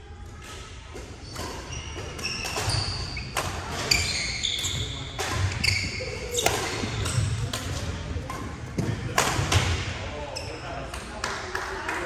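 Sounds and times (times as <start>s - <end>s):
racket hitting shuttlecock: 0.4s - 9.9s
shoes squeaking on wooden floor: 1.2s - 7.0s.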